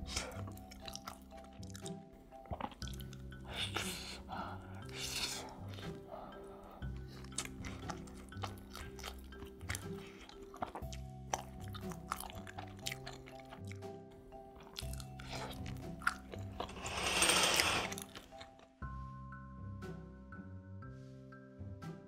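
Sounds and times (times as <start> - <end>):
soft background music: 0.0 - 22.0
crunchy bites and chewing: 7.2 - 13.9.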